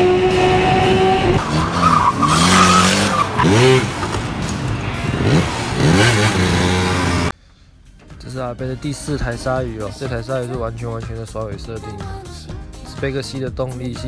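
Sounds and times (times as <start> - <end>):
tyre squeal: 0.0 - 4.1
car engine revving hard: 0.0 - 7.3.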